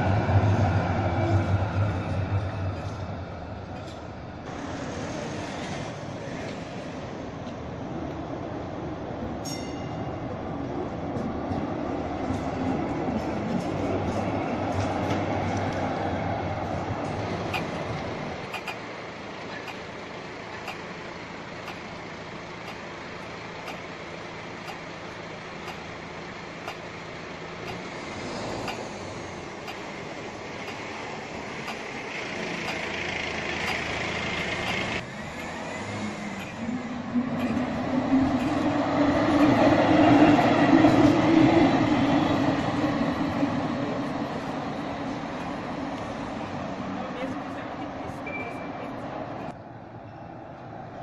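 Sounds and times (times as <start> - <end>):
street ambience: 0.0 - 51.0
tram moving away: 0.0 - 51.0.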